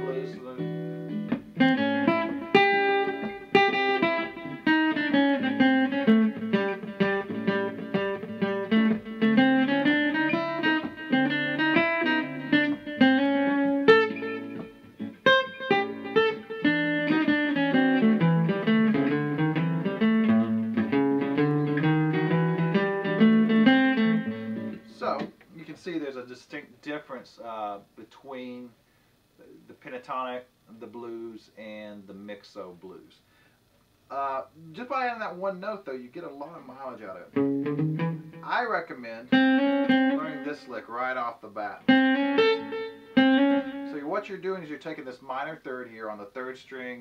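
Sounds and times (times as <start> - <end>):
backing track music: 0.0 - 25.2, 37.4 - 38.6, 39.3 - 40.8, 41.9 - 44.1
acoustic guitar blues lead: 0.0 - 25.3, 36.9 - 44.4.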